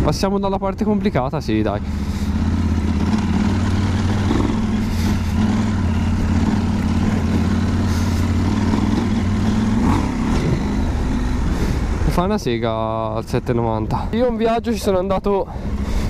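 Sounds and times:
motorcycle engine running: 0.0 - 16.0.

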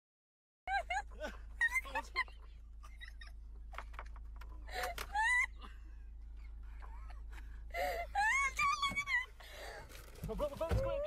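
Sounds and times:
steady low hum: 0.7 - 10.0.

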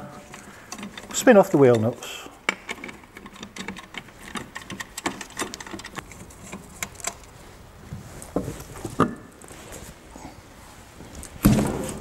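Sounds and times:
wheel nuts clicking and rattling: 0.3 - 7.3.

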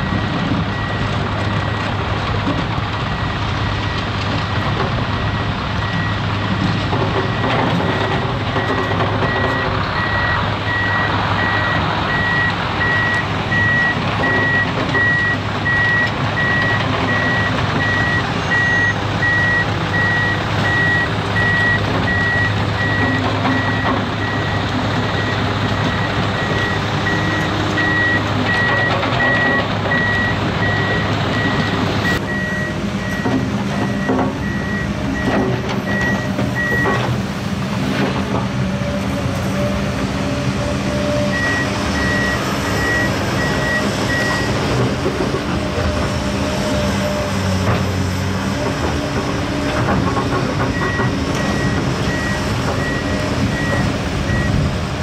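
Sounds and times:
reversing alarm beeping: 0.0 - 1.8, 2.5 - 6.2, 7.2 - 24.6, 25.2 - 37.1, 41.0 - 44.8, 50.3 - 54.7
earthmoving machinery engines: 0.0 - 55.0.

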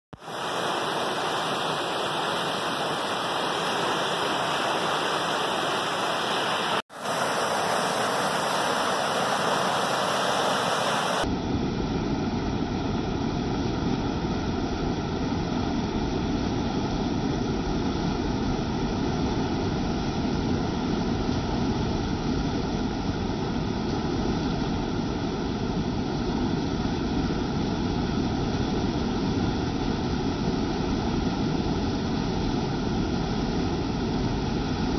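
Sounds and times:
water rushing over weir: 0.1 - 11.4.

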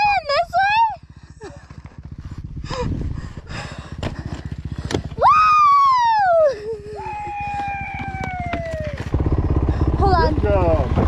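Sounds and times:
dirt bike engine idling: 0.0 - 11.0
person screaming: 5.2 - 9.0.

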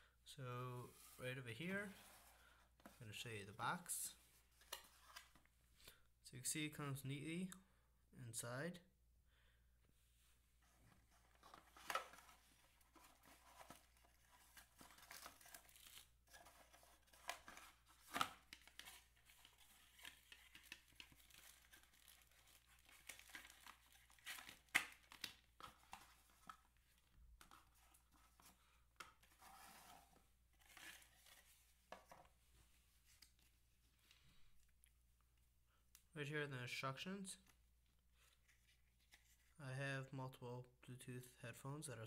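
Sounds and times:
packaging rustling and crinkling: 10.7 - 28.5.

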